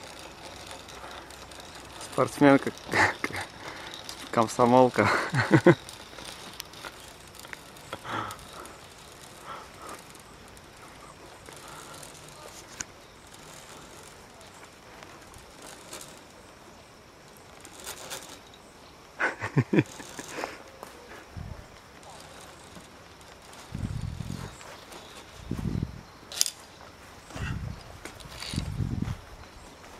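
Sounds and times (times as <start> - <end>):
light clicks and rattles: 0.0 - 29.9
pulley rolling along steel cable: 0.0 - 29.9.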